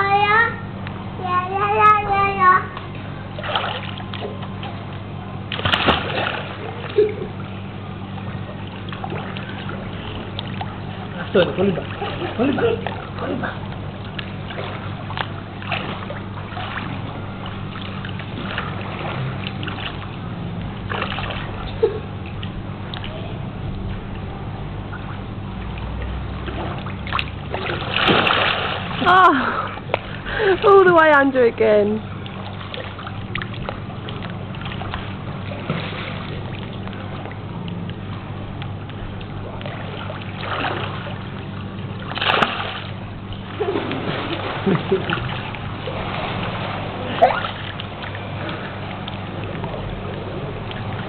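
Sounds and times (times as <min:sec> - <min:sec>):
pool water splashing: 0:00.0 - 0:51.0
steady low hum: 0:00.0 - 0:51.0
child splashing into water: 0:05.5 - 0:07.3, 0:26.5 - 0:30.7, 0:42.1 - 0:48.6.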